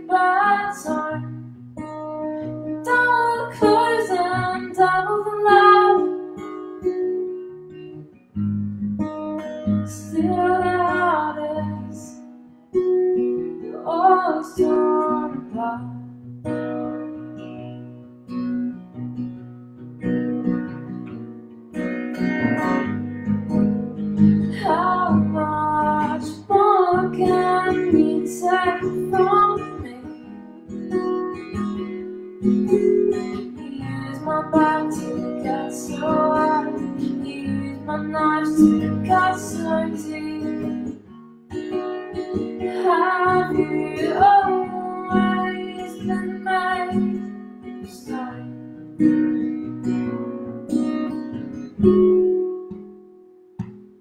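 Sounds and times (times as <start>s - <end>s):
woman singing: 0.0s - 2.0s, 2.6s - 6.6s, 9.7s - 12.3s, 13.6s - 16.1s, 24.4s - 30.4s, 32.7s - 41.0s, 42.0s - 49.2s
acoustic guitar strumming: 0.0s - 54.0s.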